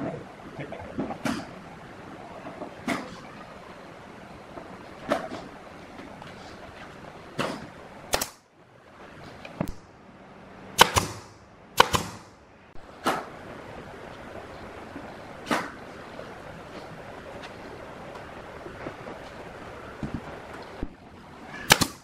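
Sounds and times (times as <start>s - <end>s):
nail gun firing into wood: 7.4s - 8.4s, 10.8s - 12.3s, 21.7s - 22.0s.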